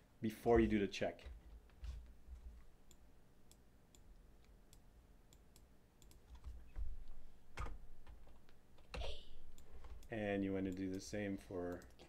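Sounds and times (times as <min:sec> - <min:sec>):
computer mouse and keyboard clicks: 0:03.9 - 0:11.1, 0:11.7 - 0:12.0.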